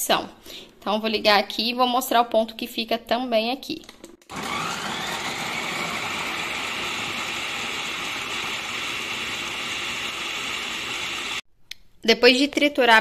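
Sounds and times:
food processor motor whirring: 0:04.2 - 0:11.4.

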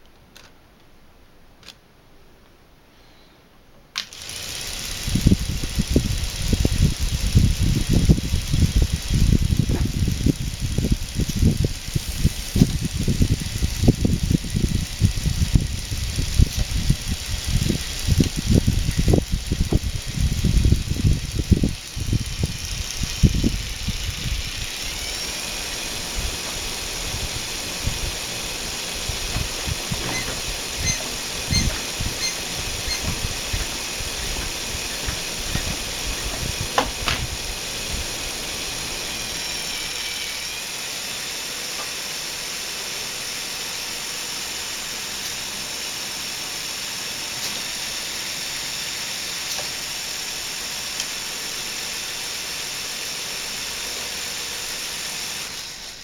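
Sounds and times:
engine whine: 0:04.0 - 0:46.4
compressed air hissing: 0:04.1 - 0:54.8
plastic rattling and knocks: 0:29.1 - 0:37.3.

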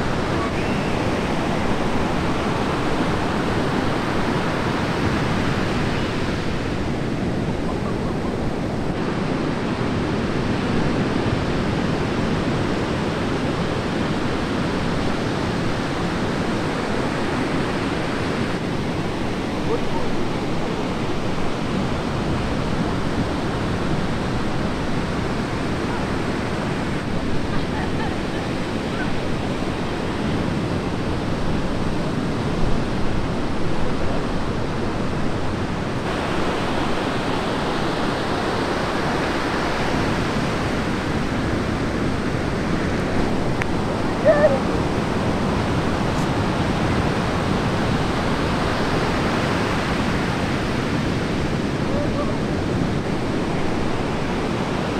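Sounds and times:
ocean surf breaking: 0:00.0 - 0:54.9.

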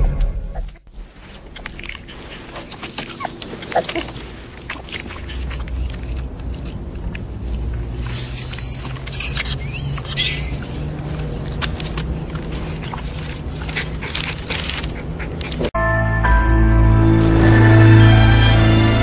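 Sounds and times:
dog licking wet clicks: 0:01.6 - 0:08.2, 0:08.8 - 0:15.6
puppy squeaking and whining: 0:02.2 - 0:04.4, 0:07.9 - 0:15.4.

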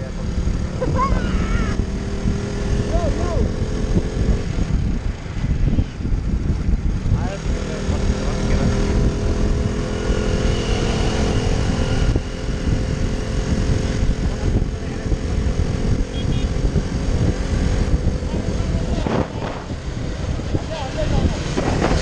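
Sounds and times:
motorcycle engine drone: 0:00.0 - 0:22.0
wind buffeting microphone: 0:00.0 - 0:22.0.

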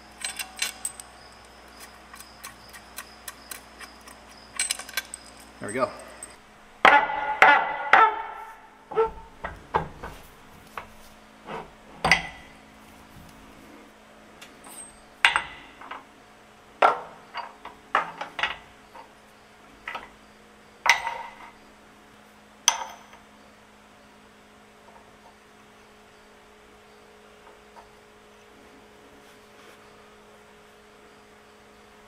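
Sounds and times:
metal parts clinking on steel: 0:00.0 - 0:06.4, 0:14.6 - 0:15.6.

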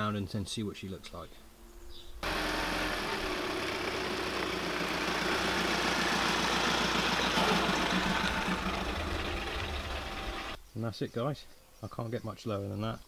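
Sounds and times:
van engine: 0:02.2 - 0:10.6.

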